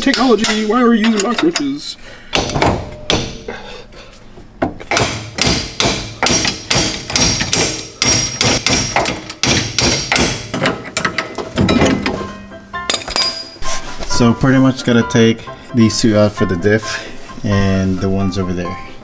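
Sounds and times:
hammer striking metal: 0.0s - 3.7s, 4.9s - 13.6s.

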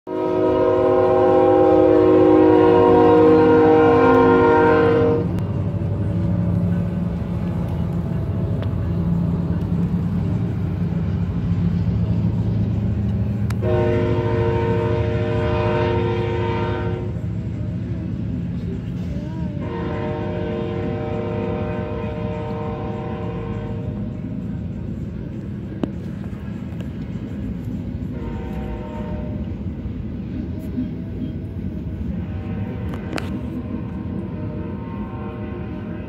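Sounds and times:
train air horn blasts: 0.1s - 5.4s, 13.5s - 17.3s, 19.6s - 24.1s, 28.0s - 29.6s, 32.0s - 36.0s
freight train rumbling past: 0.1s - 36.0s.

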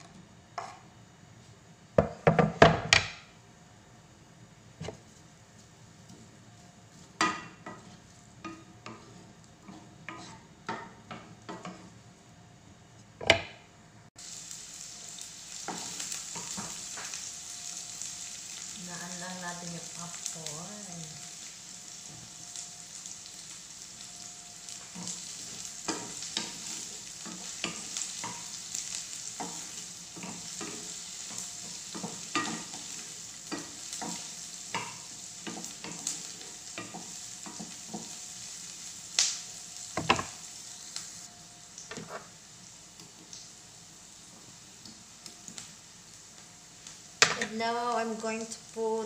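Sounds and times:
onion sizzling in hot oil: 0.0s - 13.0s, 14.1s - 49.0s
wooden spatula scraping a pan: 4.8s - 12.0s, 29.2s - 38.5s, 42.0s - 42.4s.

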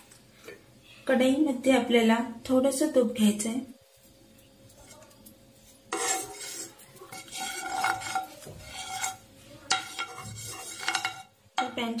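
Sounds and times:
steel spoon scraping a pan: 4.8s - 11.8s.

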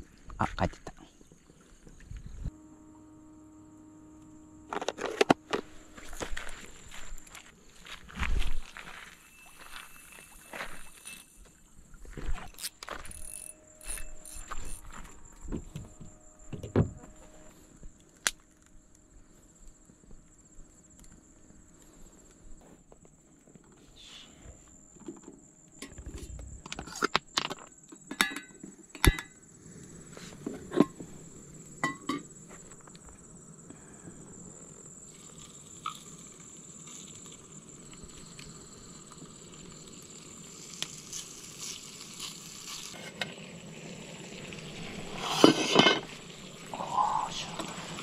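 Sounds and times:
high insect trill: 0.0s - 48.0s
meat sizzling in a pan: 39.7s - 45.4s.

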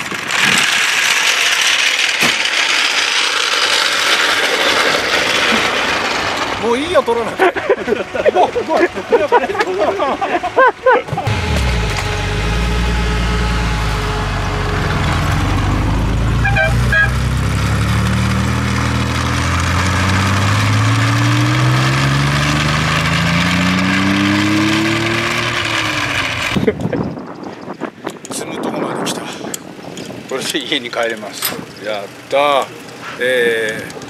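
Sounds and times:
car engine revving: 11.1s - 26.7s.

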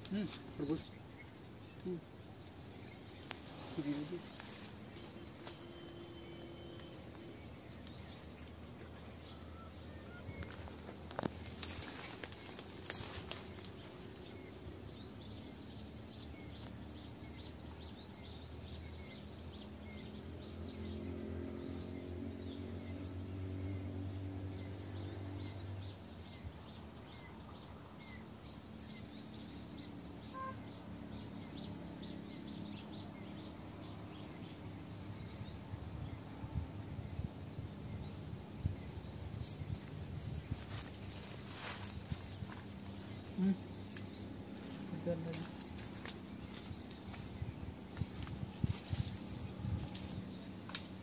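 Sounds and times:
rustling: 3.2s - 5.7s, 10.3s - 14.4s, 39.8s - 51.0s
faint high chirp: 5.0s - 7.8s.

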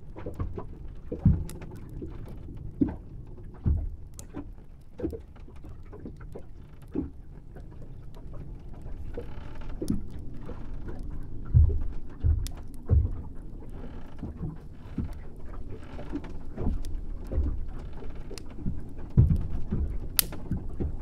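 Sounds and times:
dull knocks and creaks: 0.2s - 21.0s
low rumble: 7.2s - 21.0s.

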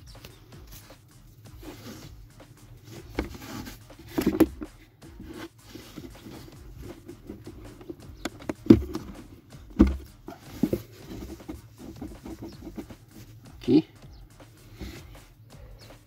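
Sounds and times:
dull thumps: 0.0s - 15.3s
hands rubbing plastic trim: 0.1s - 2.2s, 2.8s - 13.5s.

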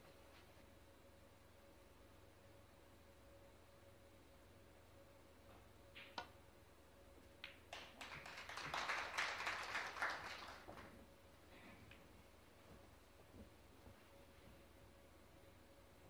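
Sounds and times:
audience applause: 7.7s - 11.0s.

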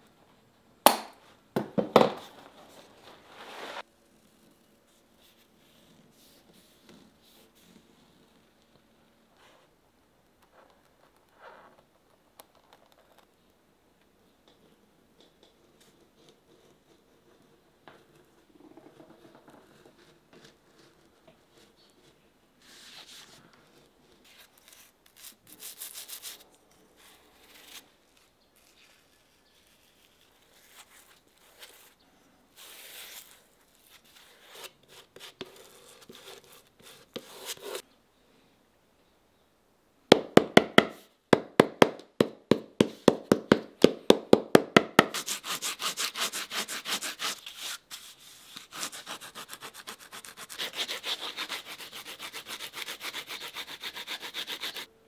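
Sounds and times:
brush spreading cement: 2.8s - 3.9s, 45.1s - 54.9s.

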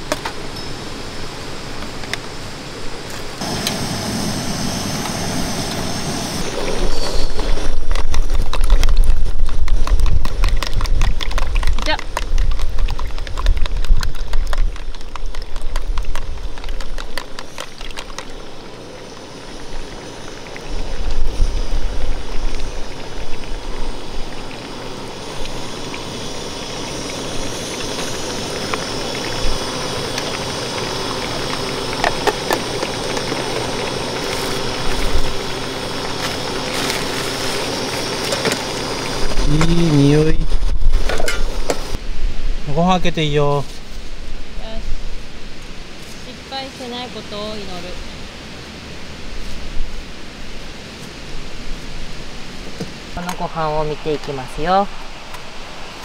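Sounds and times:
food sizzling in skillet: 3.4s - 8.1s.

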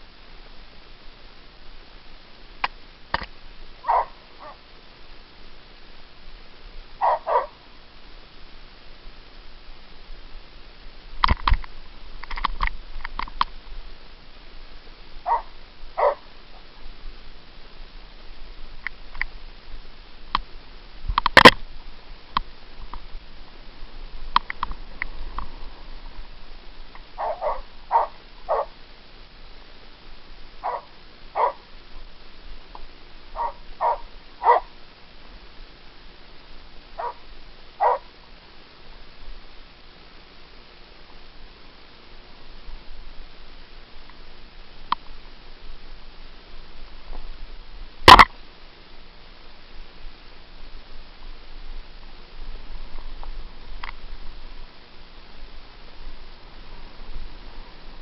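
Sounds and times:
dog barking: 3.8s - 4.6s, 7.0s - 7.6s, 15.2s - 16.3s, 27.2s - 28.7s, 30.6s - 31.6s, 33.4s - 34.7s, 37.0s - 37.2s, 37.8s - 38.1s
bike clicks and rattles: 11.2s - 13.6s.

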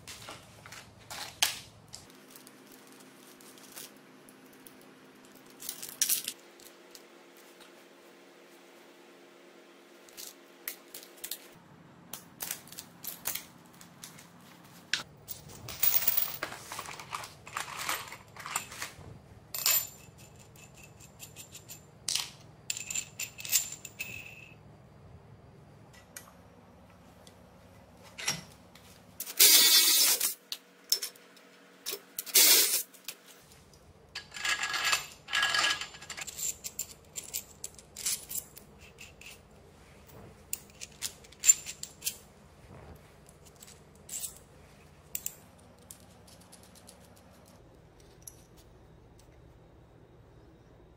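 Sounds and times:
metal chain and parts clinking: 2.1s - 7.1s, 15.0s - 24.6s, 31.9s - 42.4s, 43.2s - 48.7s.

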